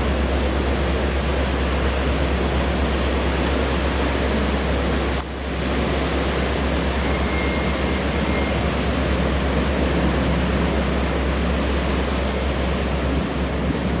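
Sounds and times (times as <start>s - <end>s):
ferry engines and waterjets rumbling: 0.0s - 14.0s.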